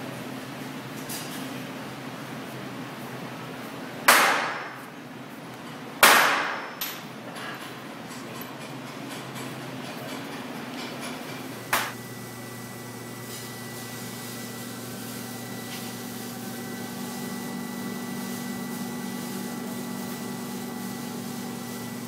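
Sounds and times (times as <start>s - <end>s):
sharp metal clank: 6.0s - 7.1s.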